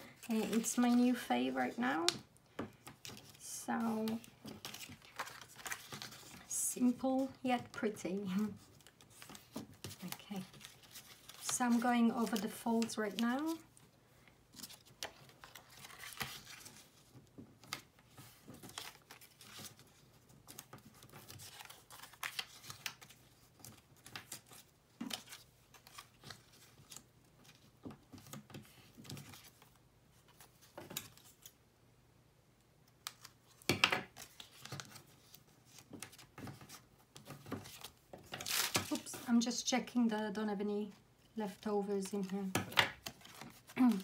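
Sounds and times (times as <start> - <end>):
paper rustling and scraping: 2.9 - 7.4, 14.5 - 31.5, 33.5 - 39.4, 42.1 - 44.0.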